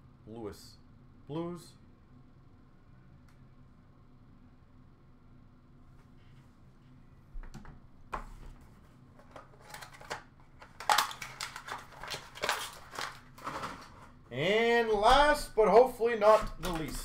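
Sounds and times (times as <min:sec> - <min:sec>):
plastic card cases clicking: 0:09.2 - 0:13.8.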